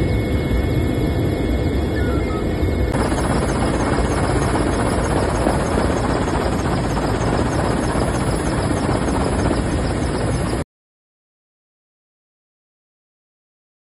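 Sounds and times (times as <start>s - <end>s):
aircraft cabin engine rumble: 0.0s - 9.6s.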